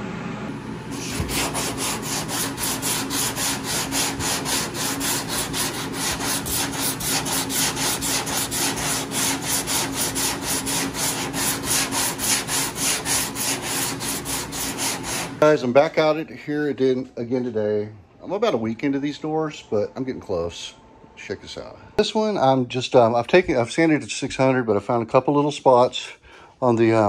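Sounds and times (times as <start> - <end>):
sandpaper sanding metal: 0.9 - 15.4.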